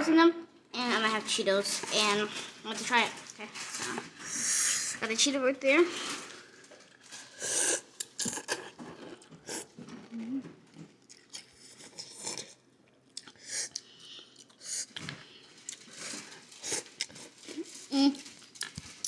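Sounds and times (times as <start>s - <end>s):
crunching and chewing snack: 6.9s - 19.0s.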